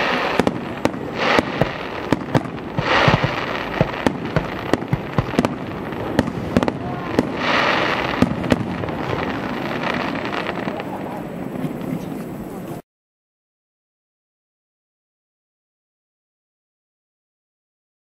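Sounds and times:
firework bangs: 0.0s - 12.4s
crackling hiss of fireworks: 0.0s - 12.8s.

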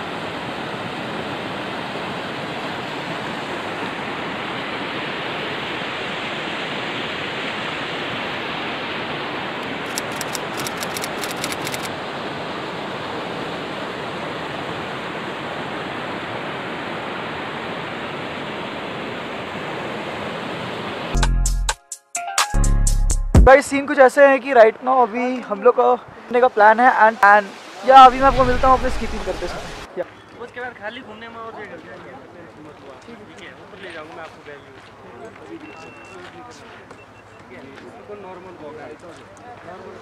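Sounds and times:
rapid sharp ticks: 9.6s - 11.9s
stream rushing over rocks: 25.6s - 29.9s.

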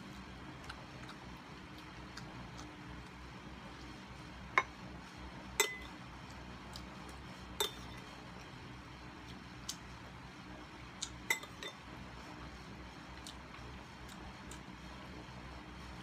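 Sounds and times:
spoon clinking against glass bowl: 5.6s - 5.9s, 7.6s - 8.0s, 11.3s - 11.8s.

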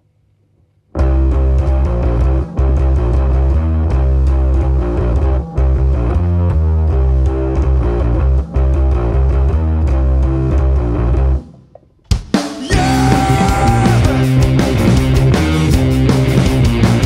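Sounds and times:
electric bass riff: 1.0s - 11.7s, 12.6s - 17.0s
rock band playing live: 12.2s - 17.0s.

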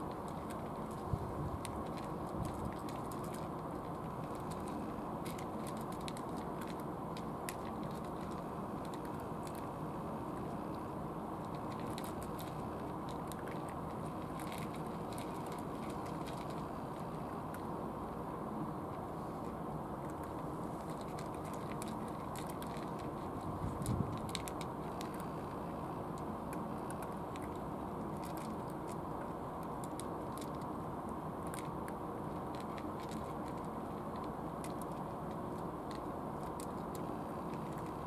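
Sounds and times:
cats crunching dry kibble: 0.0s - 38.0s
steady low background rumble: 0.0s - 38.0s.

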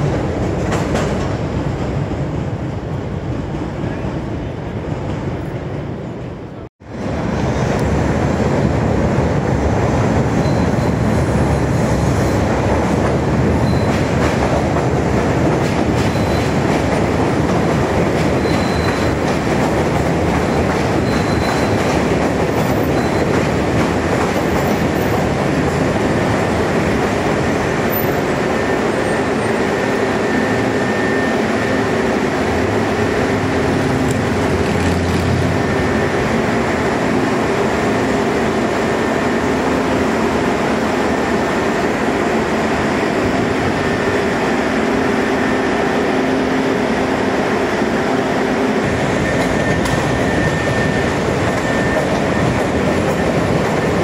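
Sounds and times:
elevated train wheels rumbling: 0.0s - 54.0s.

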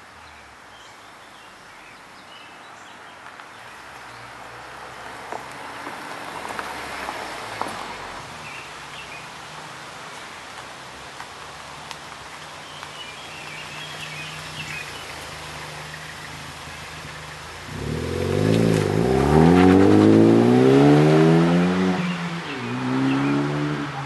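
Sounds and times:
car accelerating hard past: 17.6s - 24.0s.

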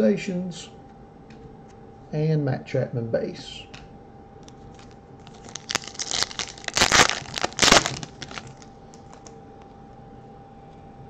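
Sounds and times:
foil wrapper tearing and crinkling: 4.8s - 9.3s.

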